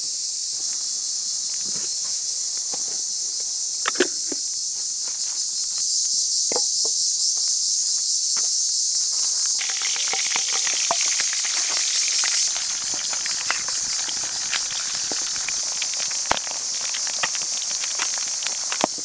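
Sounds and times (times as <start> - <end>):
eggs sizzling in a frying pan: 9.0 - 19.0
crackles and pops: 9.4 - 19.0.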